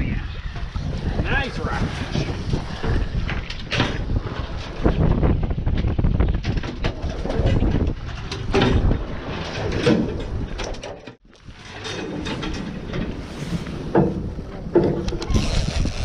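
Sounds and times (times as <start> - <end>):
wind on microphone: 0.0 - 11.7, 12.3 - 16.0
knocks and clatter of handling: 13.9 - 15.3.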